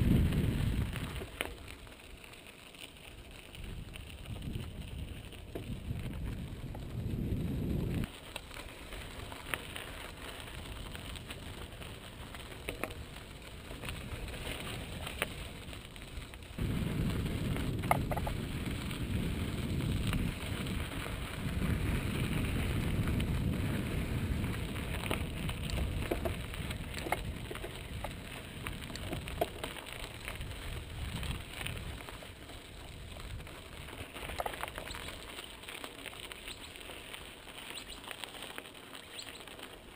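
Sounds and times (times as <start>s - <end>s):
wind rumble on microphone: 0.0s - 1.4s, 3.5s - 8.1s, 10.5s - 35.4s
bike clicks and rattles: 0.0s - 39.9s
bike tyres crunching on gravel: 0.0s - 39.9s.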